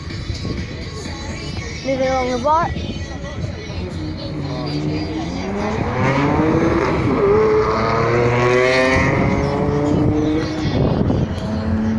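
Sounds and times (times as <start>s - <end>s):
car engine accelerating hard: 4.2s - 11.9s.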